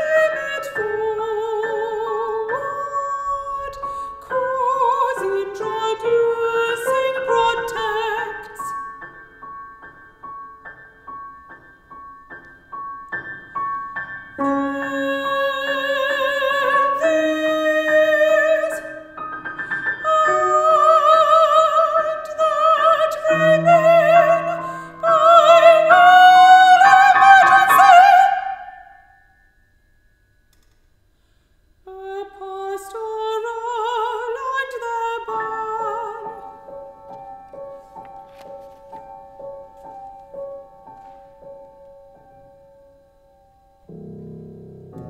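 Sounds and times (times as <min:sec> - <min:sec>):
woman singing with vibrato: 0:00.0 - 0:08.9, 0:14.4 - 0:19.2, 0:20.0 - 0:29.1, 0:31.8 - 0:36.6
piano accompaniment: 0:00.0 - 0:29.5, 0:33.4 - 0:45.0.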